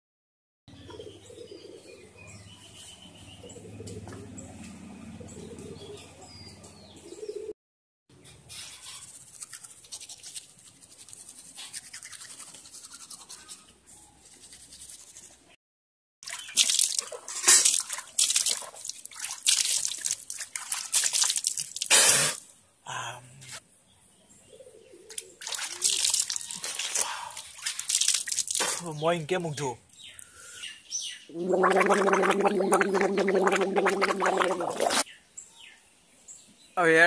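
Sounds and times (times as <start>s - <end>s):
toothbrush scrubbing teeth: 9.0s - 13.7s, 31.5s - 35.0s
water splashing on face: 16.2s - 22.4s, 25.1s - 28.8s, 31.3s - 35.0s.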